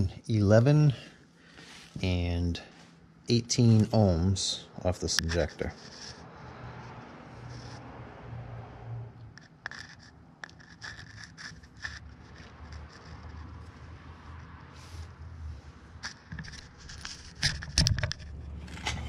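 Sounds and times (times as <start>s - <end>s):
probes scratching and clicking: 3.3s - 8.0s, 9.2s - 14.6s, 16.0s - 19.0s.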